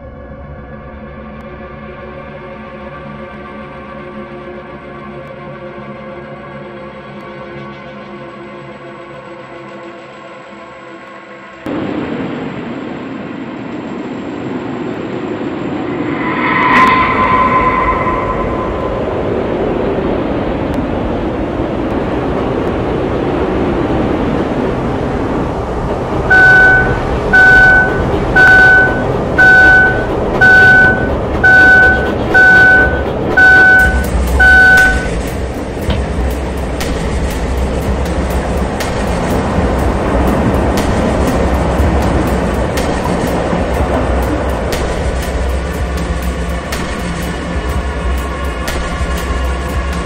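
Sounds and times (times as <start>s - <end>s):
low vehicle rumble: 15.3s - 50.0s
short pitched tone: 15.9s - 19.9s, 26.3s - 35.2s
electronic beeps: 26.3s - 35.2s.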